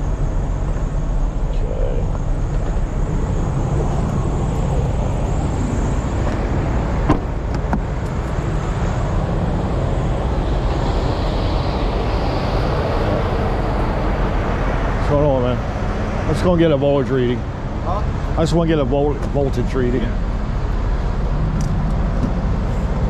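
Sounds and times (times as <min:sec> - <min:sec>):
diesel truck engines idling: 0:00.0 - 0:23.0
sharp thump: 0:07.0 - 0:07.9.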